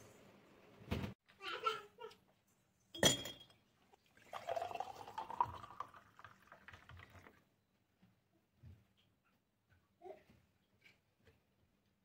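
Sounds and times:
glass clink: 2.9 - 3.6
juice pouring into glass jar: 3.9 - 7.5.

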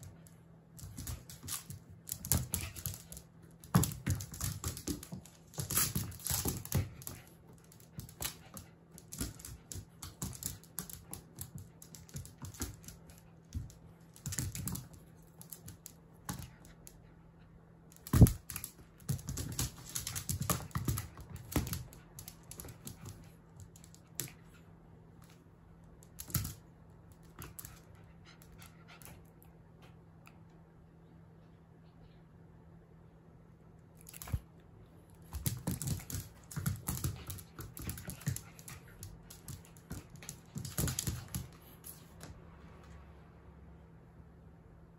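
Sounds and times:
puppy claws skittering on wood floor: 0.0 - 17.1, 17.9 - 24.6, 25.2 - 29.3, 34.0 - 34.5, 35.2 - 42.4.

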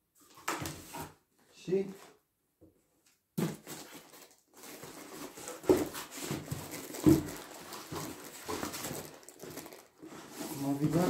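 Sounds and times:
cardboard and foam rustling: 3.4 - 11.0.

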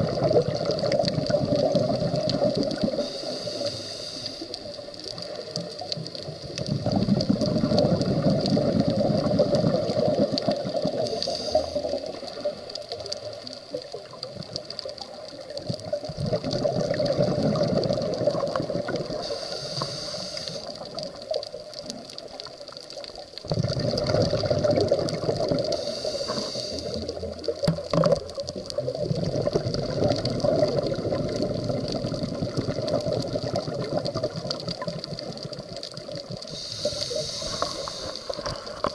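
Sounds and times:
exhaled bubbles underwater: 0.0 - 38.9
regulator inhale hiss: 2.8 - 5.3, 10.9 - 12.6, 19.0 - 20.9, 25.7 - 27.3, 36.4 - 38.9.

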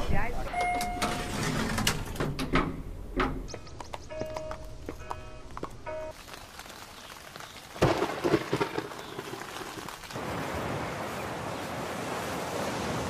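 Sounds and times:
rain falling: 6.1 - 13.0
surf washing: 10.0 - 13.0.

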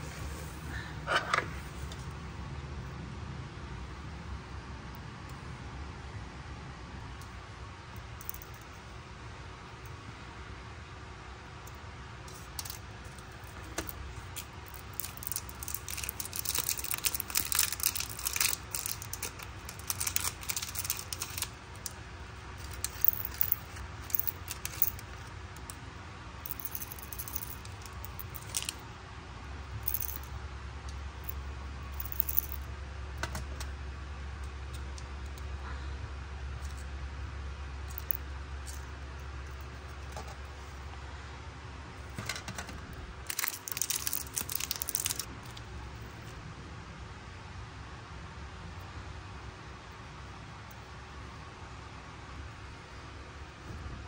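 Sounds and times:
tiny plastic pieces clicking: 8.2 - 8.6, 12.3 - 22.0, 22.6 - 25.8, 26.5 - 28.8, 29.8 - 30.3, 30.9 - 32.6, 37.9 - 38.9, 42.2 - 45.6.

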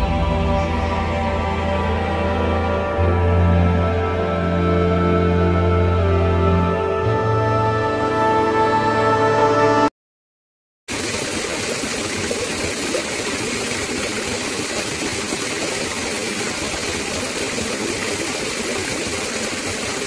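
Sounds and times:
stream water rippling over rock: 10.9 - 20.0.

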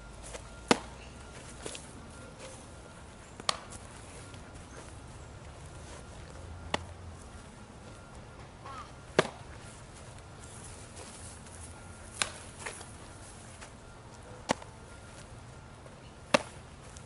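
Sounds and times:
baseball smacking into glove: 0.7 - 0.9, 3.4 - 3.8, 9.1 - 9.5, 12.1 - 12.9, 14.4 - 14.7, 16.3 - 16.6.

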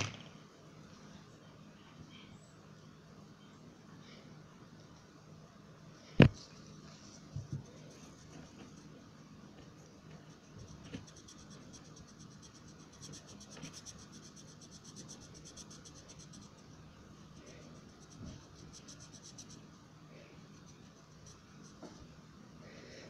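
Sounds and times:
pencil scratching on paper: 9.6 - 19.8, 20.4 - 22.2.

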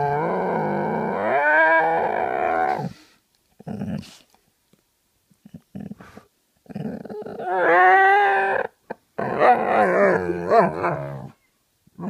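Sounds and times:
dog howling: 7.2 - 11.4
dog grumbling: 8.6 - 11.4.

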